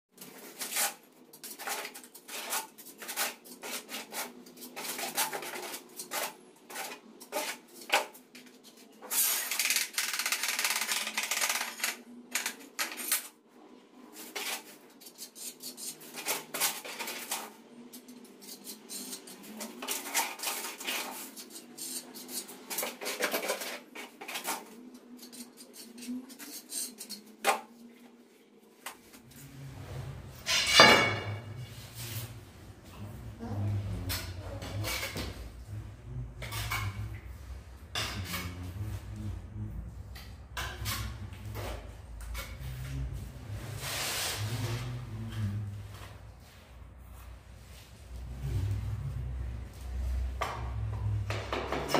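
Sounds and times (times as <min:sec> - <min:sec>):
steel trowel scraping tiles: 0:00.2 - 0:13.3, 0:14.2 - 0:27.4, 0:33.2 - 0:39.3, 0:40.6 - 0:46.1.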